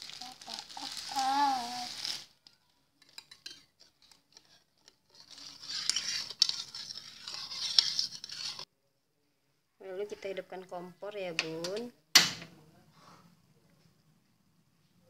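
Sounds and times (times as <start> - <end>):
spoon stirring liquid swishing: 1.9 - 8.7.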